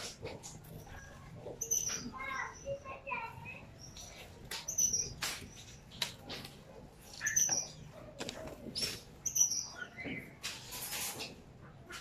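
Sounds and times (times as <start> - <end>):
finches chirping: 0.7 - 5.9, 7.0 - 7.9, 8.7 - 10.4.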